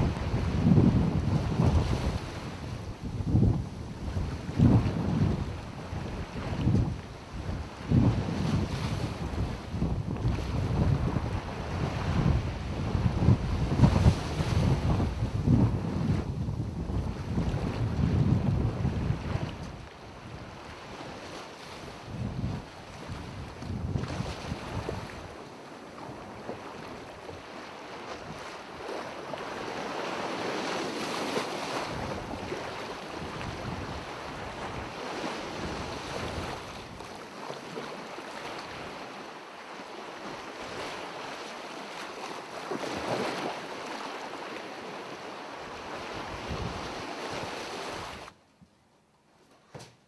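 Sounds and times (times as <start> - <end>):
wind buffeting microphone: 0.0 - 25.4, 26.0 - 37.1, 45.7 - 48.3
sea surf rushing: 0.0 - 48.4.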